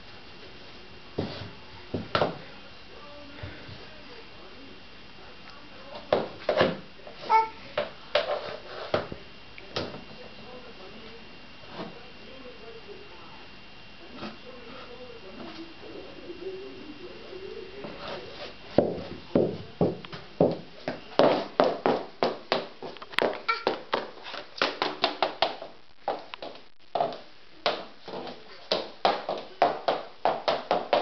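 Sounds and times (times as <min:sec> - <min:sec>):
high heels clacking on floor: 0:18.8 - 0:31.0.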